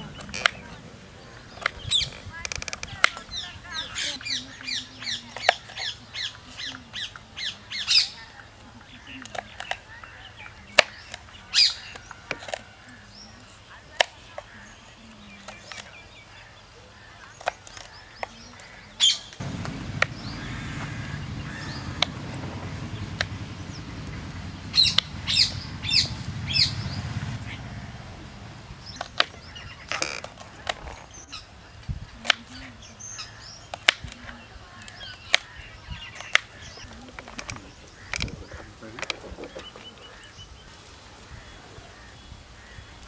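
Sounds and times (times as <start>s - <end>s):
birds chirping: 0.0s - 43.0s
low rumble: 19.4s - 29.8s.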